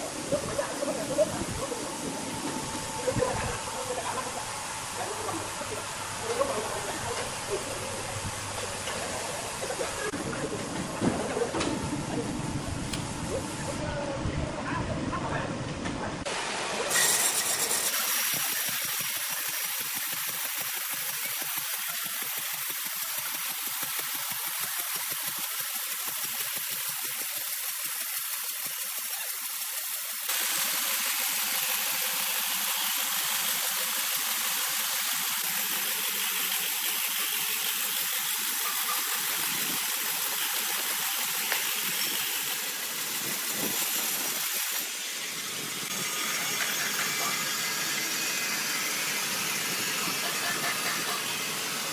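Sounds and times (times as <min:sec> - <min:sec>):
saw motors running: 0:00.0 - 0:13.8, 0:16.3 - 0:51.9
band saw blade hissing through log: 0:16.4 - 0:26.8.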